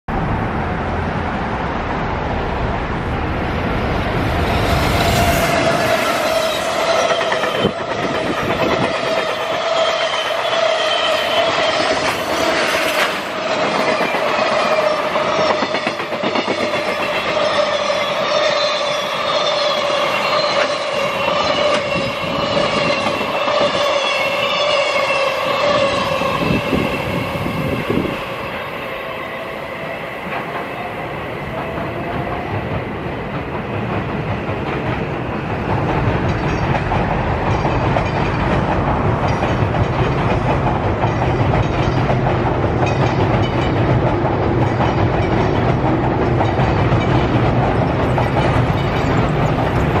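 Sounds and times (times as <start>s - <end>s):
train whine and rail running noise: 0.1s - 50.0s
steady ringing squeal: 4.1s - 31.5s
train wheels clattering over rail joints: 5.2s - 18.6s, 30.1s - 50.0s.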